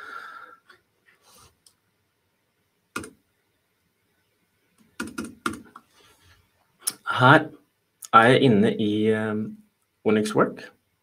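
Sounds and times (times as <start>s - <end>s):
computer mouse clicks: 2.9s - 3.2s.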